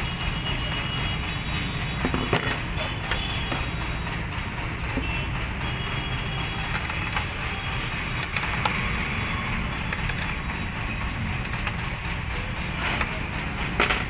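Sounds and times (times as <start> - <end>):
spanner clicking on nut: 6.6 - 7.5, 9.8 - 10.5, 11.1 - 14.0.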